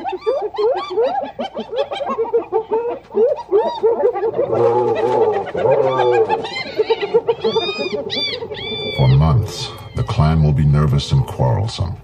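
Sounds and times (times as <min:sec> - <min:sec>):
hyenas calling: 0:00.0 - 0:11.6
low growling: 0:04.4 - 0:10.1.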